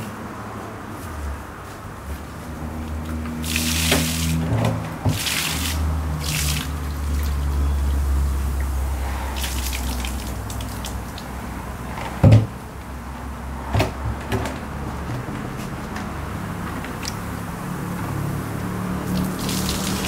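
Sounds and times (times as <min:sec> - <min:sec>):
water gushing from plastic drum: 0:03.3 - 0:11.3, 0:19.0 - 0:20.0.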